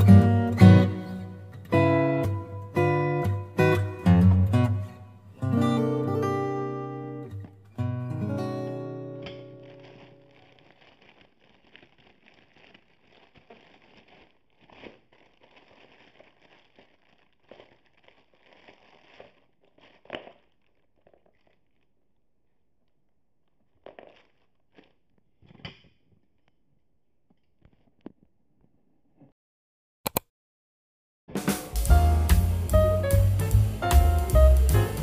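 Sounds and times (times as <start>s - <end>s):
plastic bags crinkling: 8.7s - 22.2s, 23.6s - 25.5s.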